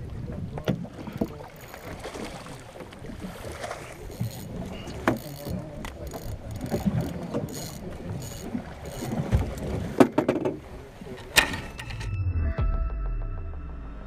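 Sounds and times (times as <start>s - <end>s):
water noise: 0.0s - 12.4s
wind: 0.0s - 14.0s
sharp knocks on boat: 3.6s - 7.5s, 8.9s - 12.1s.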